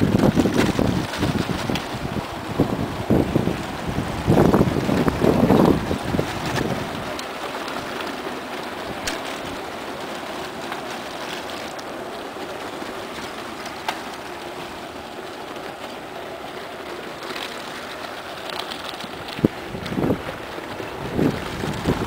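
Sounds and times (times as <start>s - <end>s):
bicycle tyres rolling on dirt: 0.0s - 22.0s
bike rattling clicks: 4.4s - 22.0s.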